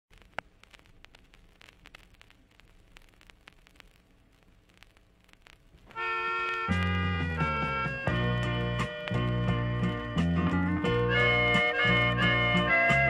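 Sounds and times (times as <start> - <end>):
vinyl record crackle and hiss: 0.0 - 13.0
music with loud held chord: 6.0 - 13.0.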